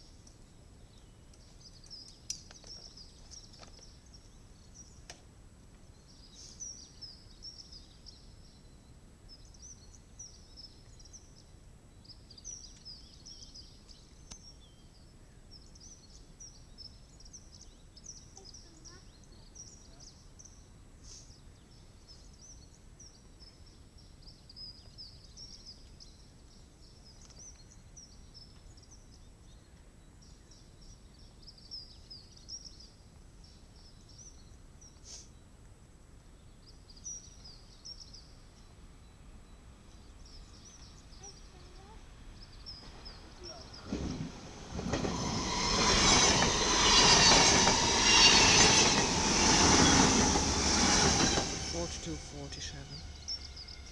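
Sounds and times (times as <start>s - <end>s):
small birds chirping: 0.0s - 5.2s, 5.8s - 35.6s, 36.2s - 53.9s
low outdoor rumble: 39.3s - 53.9s.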